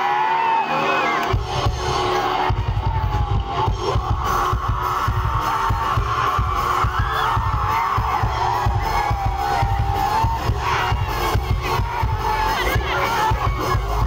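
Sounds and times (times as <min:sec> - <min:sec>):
rapid drum beats: 0:01.2 - 0:14.0.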